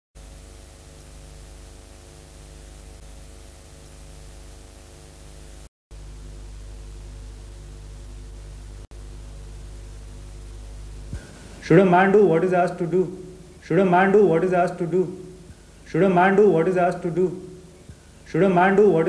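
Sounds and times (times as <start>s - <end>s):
low buzzing hum: 0.2s - 19.0s
static-like hiss: 0.2s - 19.0s.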